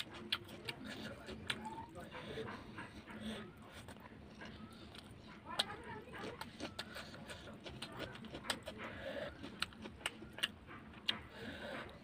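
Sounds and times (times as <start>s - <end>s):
close chewing: 0.0s - 12.0s.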